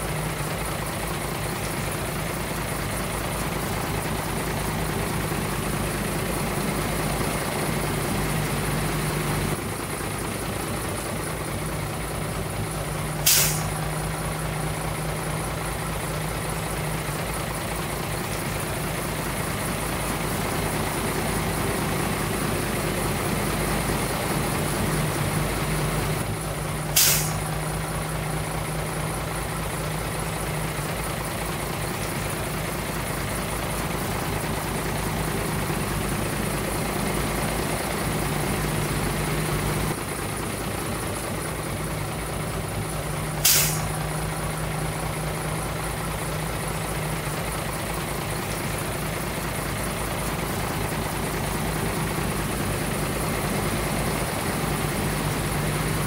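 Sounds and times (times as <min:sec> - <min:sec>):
diesel truck engine idling: 0:00.0 - 0:56.0
short sharp hisses: 0:13.2 - 0:13.8, 0:26.9 - 0:27.5, 0:43.4 - 0:44.0.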